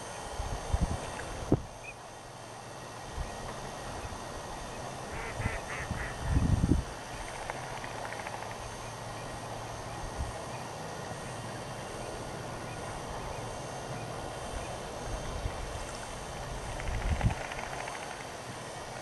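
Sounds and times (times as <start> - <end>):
outdoor background noise: 0.0 - 19.0.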